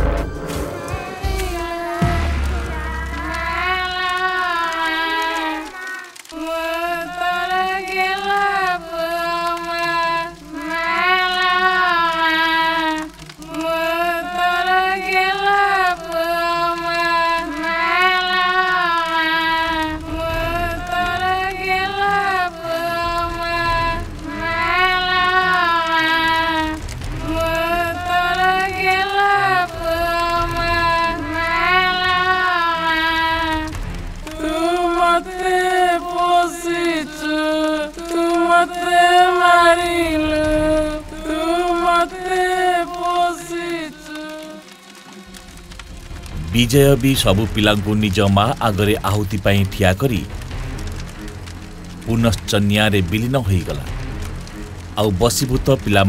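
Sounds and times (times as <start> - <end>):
person singing lullaby: 0.9 - 33.6, 34.3 - 44.8.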